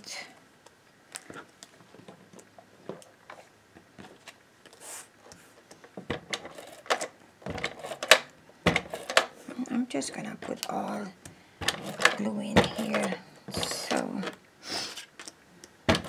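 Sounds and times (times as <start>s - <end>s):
craft tools clicking and knocking: 5.8s - 9.4s, 11.6s - 14.4s.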